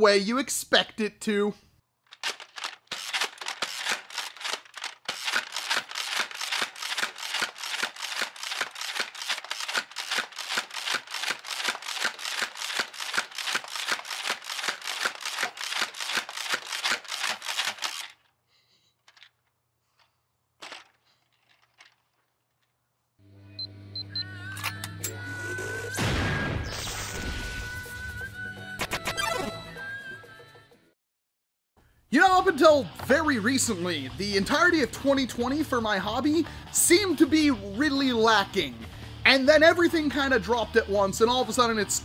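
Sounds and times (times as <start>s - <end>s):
toy dart gun firing clacks: 2.1s - 18.2s.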